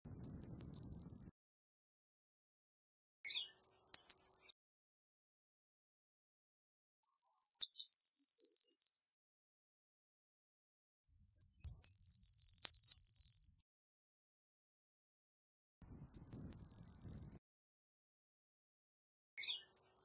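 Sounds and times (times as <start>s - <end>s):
bird singing high notes and trill: 0.1s - 1.3s, 3.3s - 4.4s, 15.9s - 17.4s, 19.4s - 20.0s.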